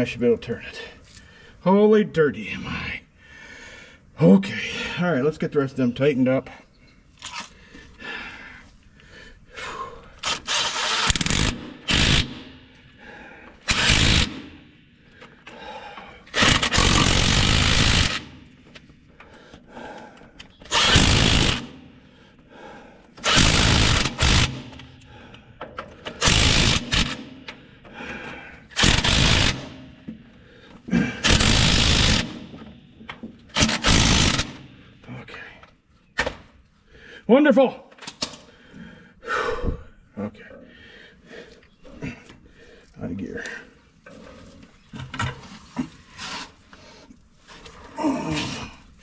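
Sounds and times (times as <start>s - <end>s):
power wrench tightening bolts: 10.2s - 12.5s, 13.5s - 14.5s, 16.3s - 19.3s, 20.4s - 21.7s, 23.2s - 24.9s, 25.6s - 27.6s, 28.7s - 29.8s, 31.2s - 34.7s.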